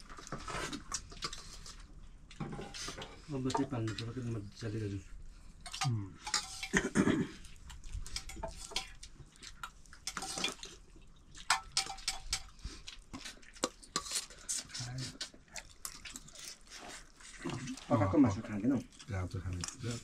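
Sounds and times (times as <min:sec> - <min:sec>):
dishes and utensils clinking: 0:05.6 - 0:07.3, 0:08.0 - 0:09.0, 0:10.0 - 0:10.7, 0:11.4 - 0:12.6.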